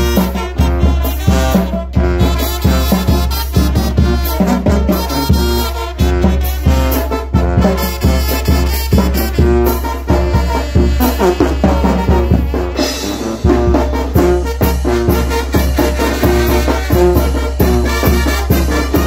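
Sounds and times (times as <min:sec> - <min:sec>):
bass drum and cymbal beat: 0:00.0 - 0:19.0
trumpets and saxophone melody: 0:00.0 - 0:19.0.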